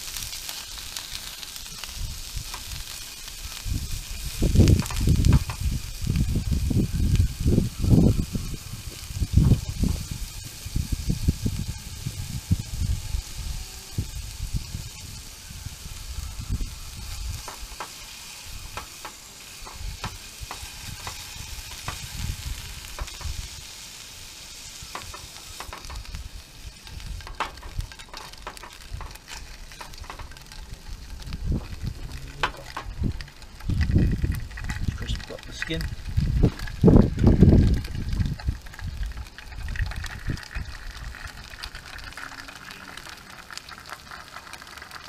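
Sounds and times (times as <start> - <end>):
fish sizzling in a frying pan: 0.0 - 45.0
low rumbles: 25.7 - 41.7.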